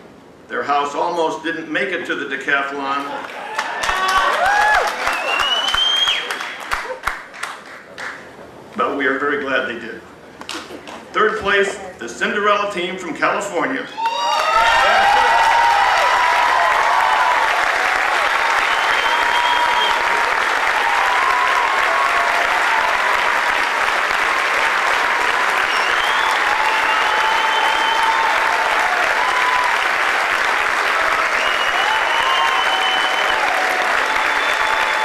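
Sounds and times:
large audience applause: 3.0s - 8.3s, 14.0s - 35.0s.

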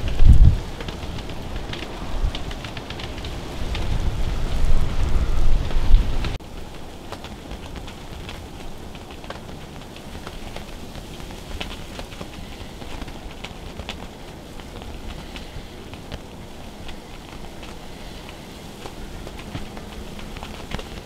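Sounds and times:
loud low rumble: 0.0s - 6.4s
snow ticking on fabric: 0.0s - 21.0s.

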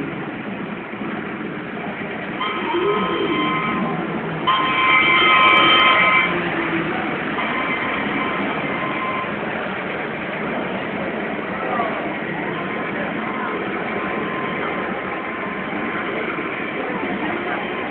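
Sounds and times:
model trains rumbling: 0.0s - 17.9s
model train horn blasts: 2.4s - 6.6s.

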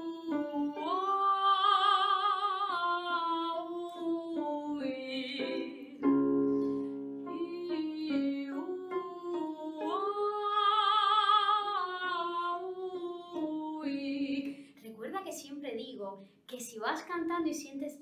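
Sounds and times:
woman singing a vocalise: 0.0s - 6.1s, 7.2s - 14.8s
piano accompaniment: 4.2s - 10.6s.

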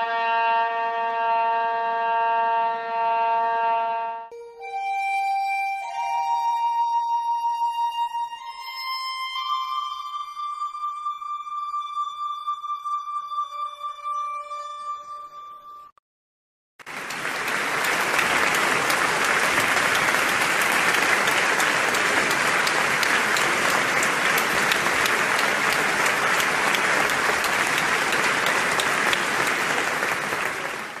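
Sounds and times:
audience applause: 16.8s - 31.0s.

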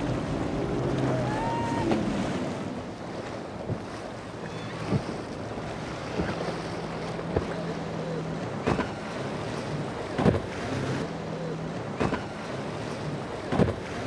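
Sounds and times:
outboard engine hum: 0.0s - 14.0s
rush of waves and spray: 0.0s - 14.0s.

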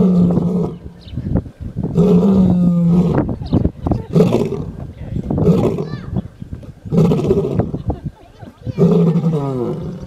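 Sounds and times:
lion roaring: 0.0s - 0.9s, 1.9s - 3.3s, 5.4s - 6.0s, 6.9s - 7.8s, 8.8s - 10.0s.

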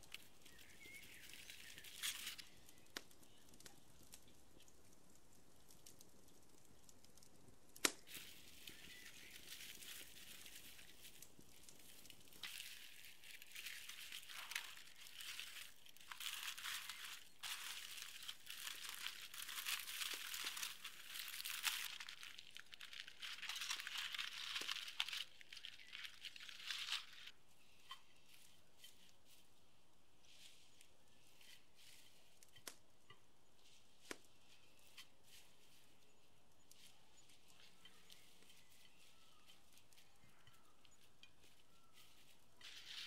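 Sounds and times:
foil crinkling: 0.0s - 4.7s, 7.9s - 27.4s, 33.6s - 43.0s.

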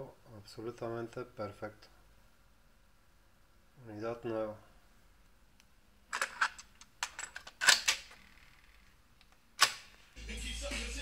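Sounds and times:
music from tape: 10.2s - 11.0s.

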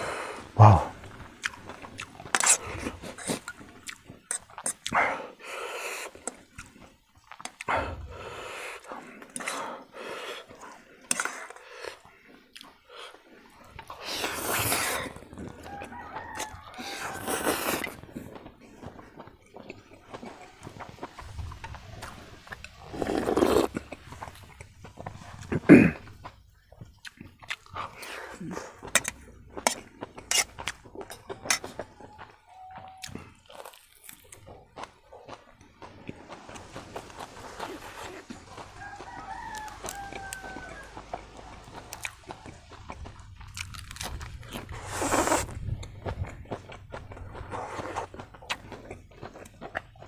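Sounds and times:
chewing and crunching food: 0.0s - 50.0s
noodles slurped: 7.4s - 15.7s, 16.8s - 18.3s, 22.0s - 25.8s, 44.1s - 45.8s.

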